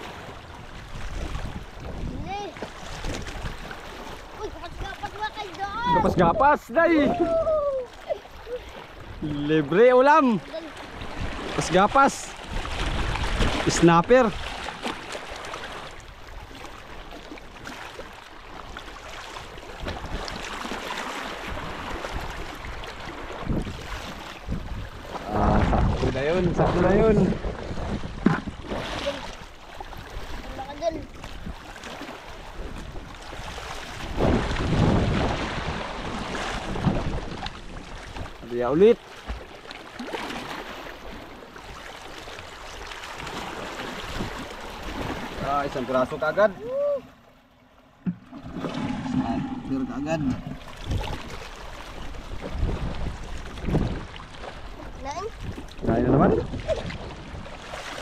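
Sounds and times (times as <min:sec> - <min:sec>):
wind on microphone: 0:00.0 - 0:07.9, 0:10.8 - 0:14.7, 0:19.4 - 0:31.7, 0:32.4 - 0:38.4, 0:48.0 - 0:58.0
water sloshing around boat: 0:00.0 - 0:58.0
low bumps: 0:47.8 - 0:51.4.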